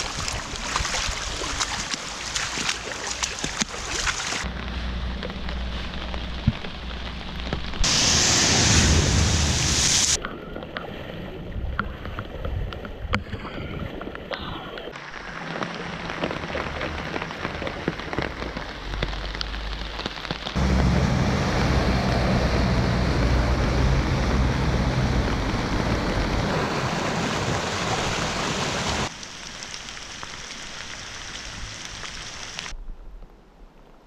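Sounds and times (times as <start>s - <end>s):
floodwater rushing down stream: 0.0s - 32.8s.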